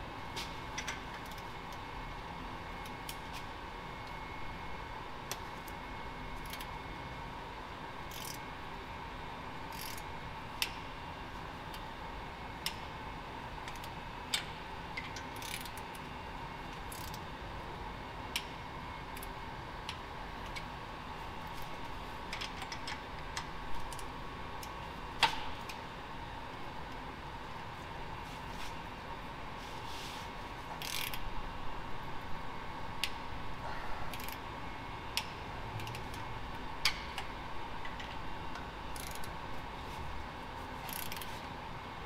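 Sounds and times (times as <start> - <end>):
shop hum: 0.0 - 42.0
metal clicks and taps of tools: 0.8 - 1.8, 22.3 - 25.8.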